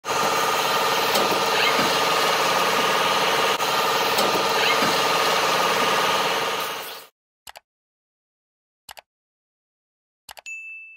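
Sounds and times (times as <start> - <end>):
lathe machine hum and whine: 0.0 - 7.1.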